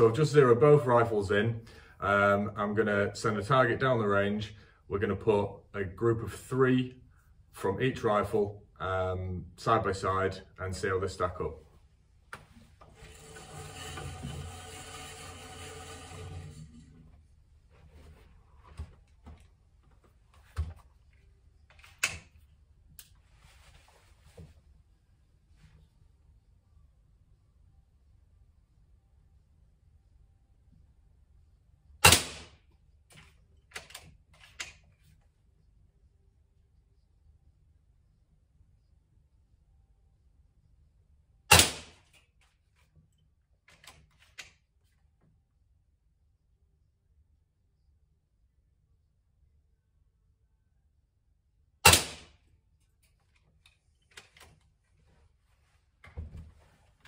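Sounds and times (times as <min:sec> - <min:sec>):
air rifle shot: 0:32.0 - 0:32.5, 0:41.5 - 0:42.0, 0:51.8 - 0:52.4.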